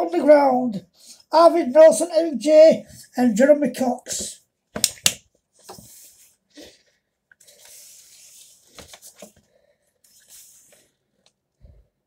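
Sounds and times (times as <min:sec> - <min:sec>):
pages rustling: 0:07.4 - 0:10.9.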